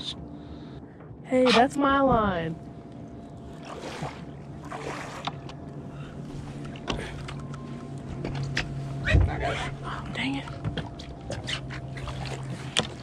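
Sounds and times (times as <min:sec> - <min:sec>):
boat engine low hum: 0:00.0 - 0:13.0.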